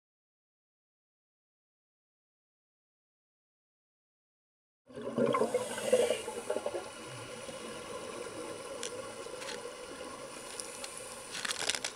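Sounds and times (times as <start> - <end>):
faint steady hum: 5.0 - 11.9
underwater hiss: 5.1 - 11.9
clicks and crackles: 8.7 - 9.8, 10.4 - 11.9.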